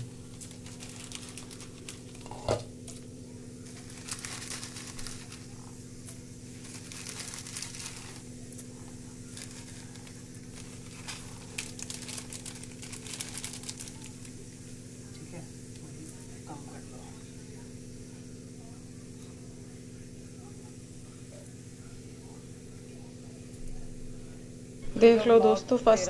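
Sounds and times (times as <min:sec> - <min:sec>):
steady low hum: 0:00.0 - 0:26.0
plastic packet crinkling: 0:00.1 - 0:14.4.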